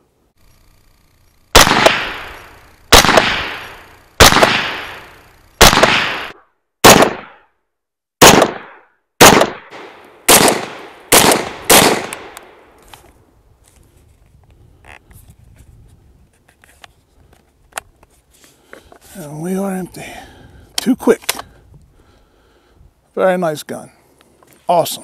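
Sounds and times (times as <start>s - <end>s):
rifle gunshots: 1.5s - 7.4s, 8.2s - 12.6s.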